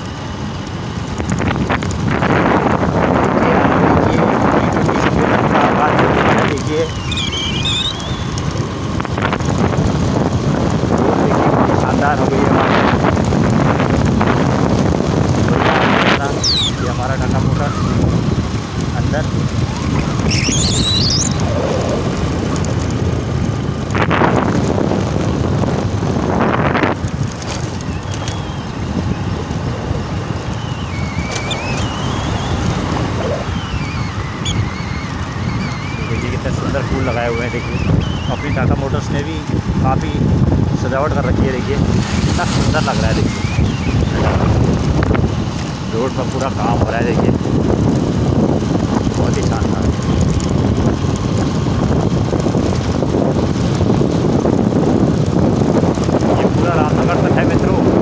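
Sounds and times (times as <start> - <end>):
low road rumble: 0.0 - 58.0
wind over microphone: 0.0 - 58.0
thin wavering high tone: 6.8 - 8.3, 20.2 - 21.4, 30.6 - 38.8.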